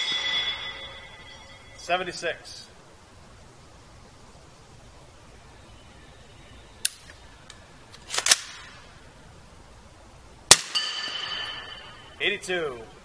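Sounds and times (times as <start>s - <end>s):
metallic ring: 0.0s - 2.1s, 10.7s - 12.2s.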